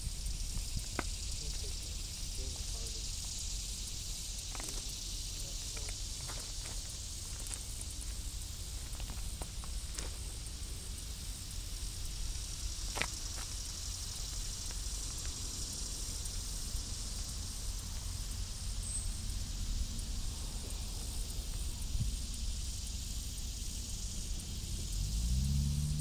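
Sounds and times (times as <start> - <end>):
wind buffeting microphone: 0.0 - 3.9.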